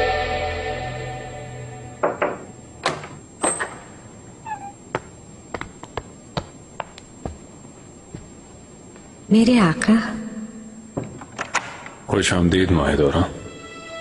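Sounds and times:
knocks on wooden door: 2.0 - 3.0
door creaking open: 4.4 - 4.8
light sharp footsteps: 4.9 - 9.2.

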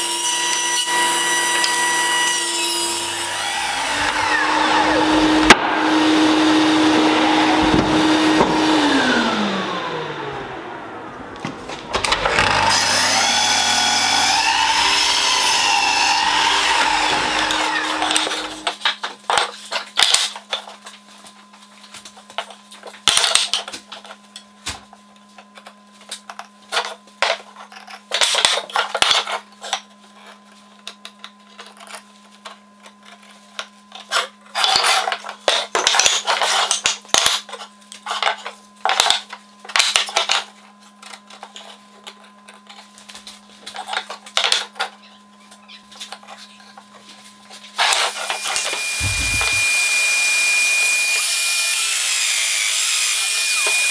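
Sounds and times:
power tool whine: 0.0 - 18.7, 47.8 - 53.9.

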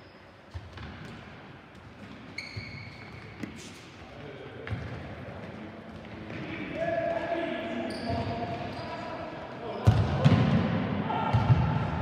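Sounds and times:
shoe squeak: 0.0 - 0.4, 2.3 - 3.8, 7.8 - 10.0.

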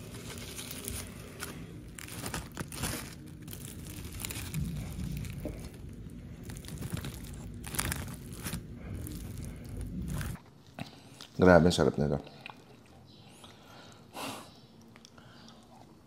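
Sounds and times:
leaf wrapper crinkling: 0.0 - 10.4.

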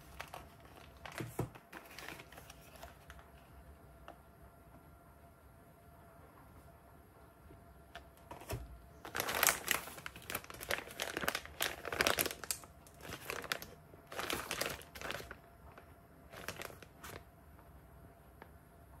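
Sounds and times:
plastic pouch crinkling: 0.0 - 3.4, 9.0 - 17.3.

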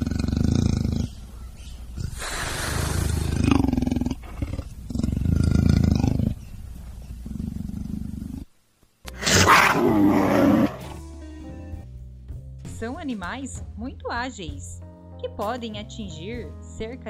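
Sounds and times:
leopard roaring calls: 0.0 - 8.5, 9.1 - 11.0.

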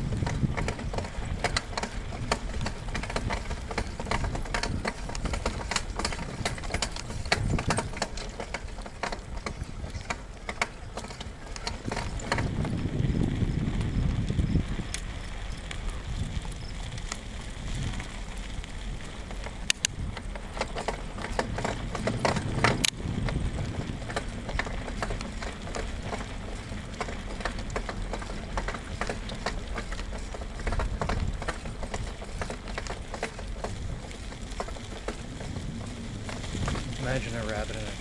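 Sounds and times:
bike rattling clicks: 0.0 - 38.0
bike tyres crunching on gravel: 0.0 - 38.0.

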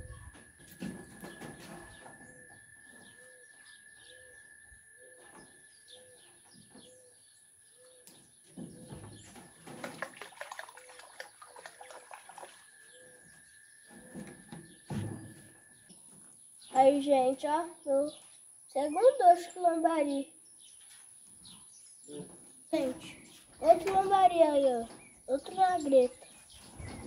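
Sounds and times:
birds chirping: 0.0 - 27.0
bird cooing: 1.8 - 8.0, 12.9 - 13.3.

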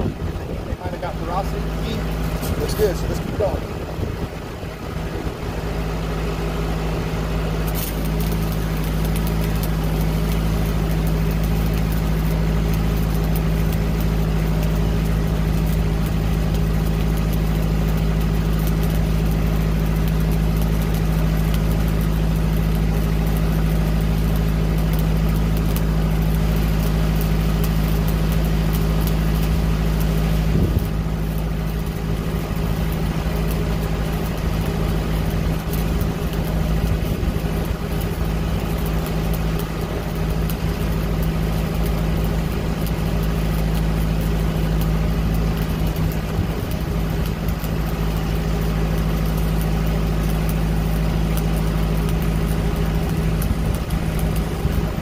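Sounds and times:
welder engine drone: 0.0 - 55.0
welding arc crackling and hissing: 0.0 - 55.0.

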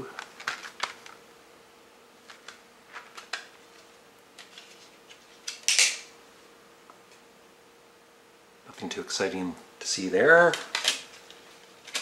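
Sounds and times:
plastic scraping crackle: 0.2 - 1.2.

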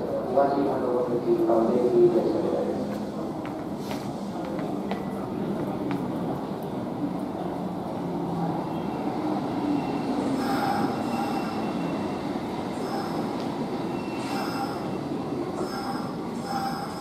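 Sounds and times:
train wheels rumbling: 7.6 - 17.0
high-pitched brake squealing: 9.6 - 12.2, 12.8 - 17.0.

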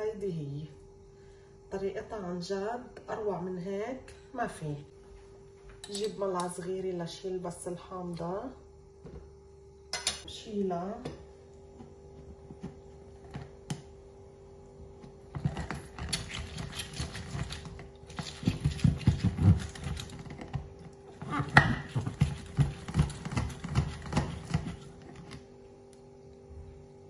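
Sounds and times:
faint steady hum: 0.0 - 27.0
lemon grinding on citrus reamer: 15.4 - 25.4.

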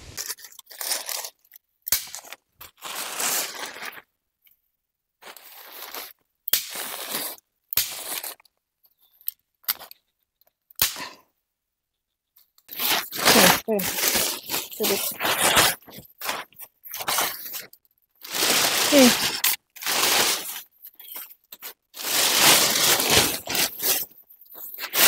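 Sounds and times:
plastic sheeting crinkling: 12.7 - 25.0.

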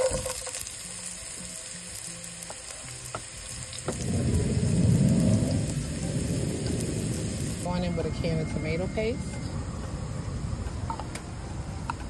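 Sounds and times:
onion sizzling in a frying pan: 0.0 - 9.1
low rumble: 3.9 - 12.0.

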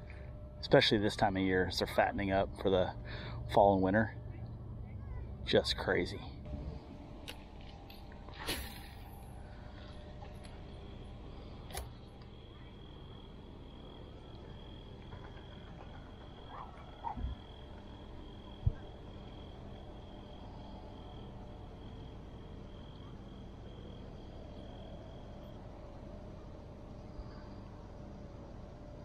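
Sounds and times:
low rumble: 6.2 - 21.6.

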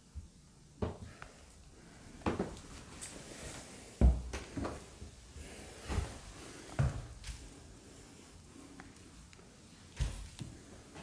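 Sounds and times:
footsteps on wooden floor: 4.0 - 7.5.

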